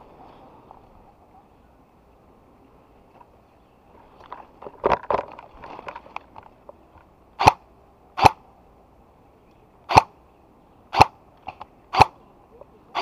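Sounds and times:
airsoft gun shots: 7.4s - 7.6s, 8.2s - 8.4s, 9.9s - 10.1s, 10.9s - 11.2s, 11.9s - 12.2s.

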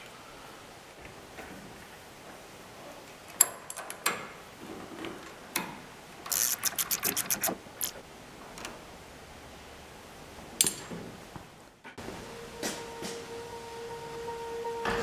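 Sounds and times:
metal hand tool clicking on nut: 6.3s - 8.0s.

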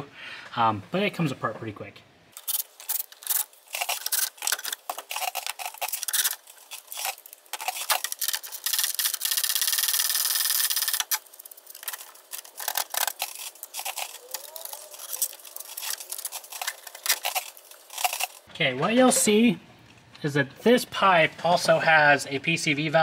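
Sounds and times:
clatter of parts being handled: 2.4s - 18.5s
ratchet wrench clicking: 7.0s - 11.2s.

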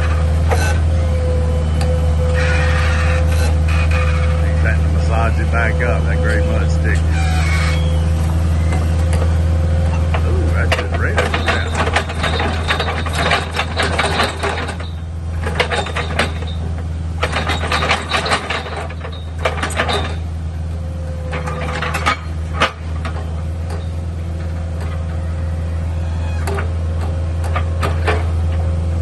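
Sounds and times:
diesel engine running: 0.0s - 29.0s
auger rattling and clattering: 8.7s - 20.4s, 21.2s - 25.5s.

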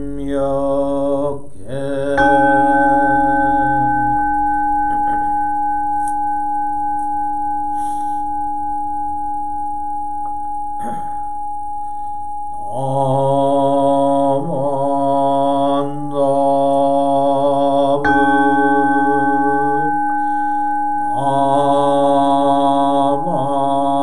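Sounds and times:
man chanting: 0.0s - 5.4s, 12.6s - 20.0s, 21.1s - 24.0s
bowl bell ringing: 2.2s - 14.4s, 15.1s - 24.0s.

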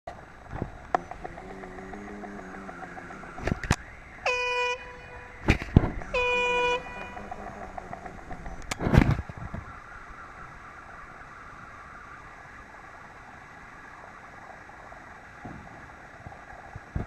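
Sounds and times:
air horn blasts: 4.2s - 7.9s.

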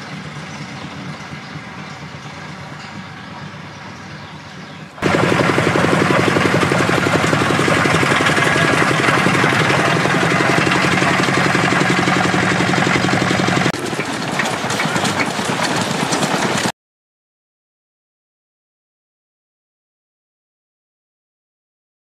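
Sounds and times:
steam engine running: 5.0s - 16.7s.

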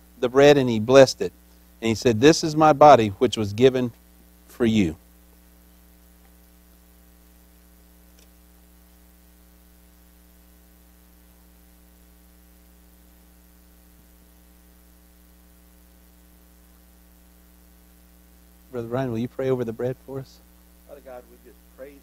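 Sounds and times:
electrical mains hum: 0.0s - 22.0s
faint hiss: 0.0s - 22.0s
faint click: 8.1s - 8.4s.

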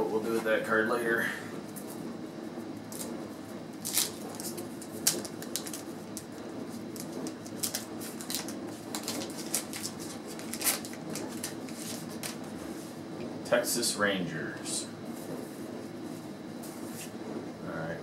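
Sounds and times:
wax paper wrapper crinkling and tearing: 3.8s - 12.5s.

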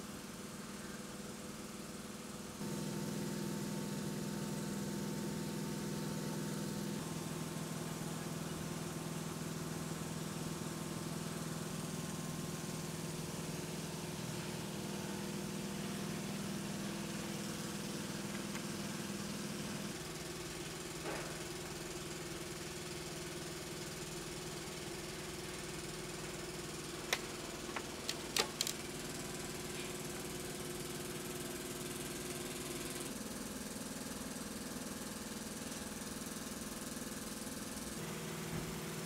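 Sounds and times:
machine humming: 38.0s - 39.0s.

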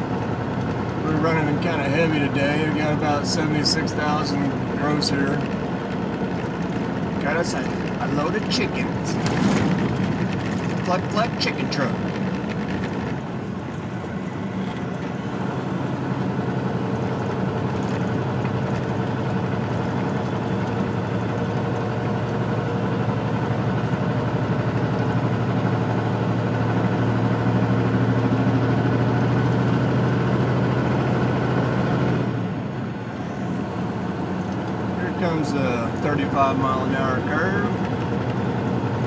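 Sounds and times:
diesel truck engine under load: 0.0s - 39.0s.

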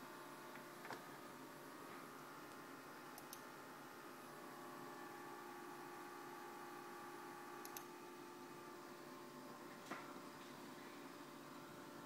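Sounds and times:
faint electrical hum: 0.0s - 12.0s
faint clicks: 7.6s - 7.9s.

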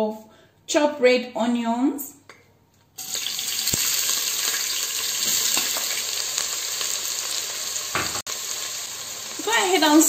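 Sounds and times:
onions sizzling in hot oil: 3.0s - 10.0s.

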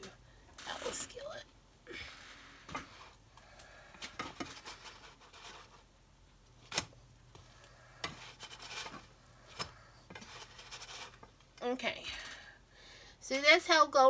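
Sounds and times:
spatula scraping skillet: 2.1s - 6.0s, 6.7s - 11.5s.

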